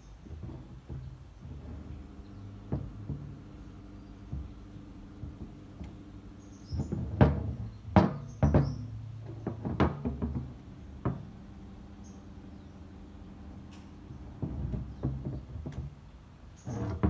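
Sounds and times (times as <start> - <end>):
metal pump clunking on a bench: 0.0 - 11.4, 13.6 - 17.0
low steady background noise: 0.0 - 17.0.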